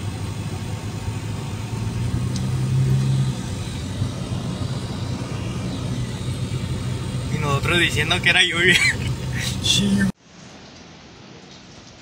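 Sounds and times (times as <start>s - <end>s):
car engine and road drone: 0.0s - 10.2s.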